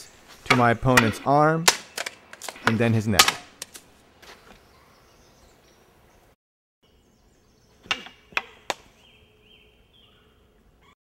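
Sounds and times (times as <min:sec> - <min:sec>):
wooden swords clacking: 0:00.3 - 0:03.9, 0:07.8 - 0:08.9.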